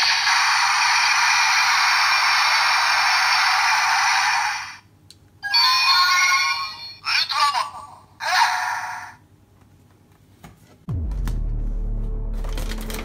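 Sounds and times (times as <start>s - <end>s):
toy speaker rushing hiss: 0.0s - 4.8s.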